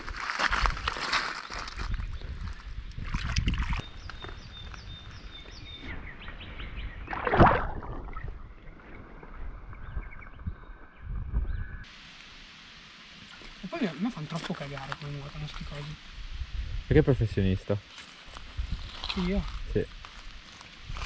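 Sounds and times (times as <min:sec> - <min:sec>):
water sloshing and splashing: 0:03.0 - 0:03.9, 0:07.1 - 0:09.8
fish splashing away: 0:07.1 - 0:08.4.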